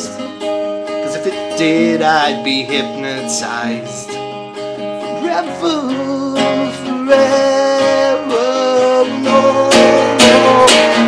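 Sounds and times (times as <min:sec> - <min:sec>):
acoustic guitar strumming: 0:00.0 - 0:11.0
person singing long notes: 0:01.0 - 0:04.2, 0:05.0 - 0:11.0.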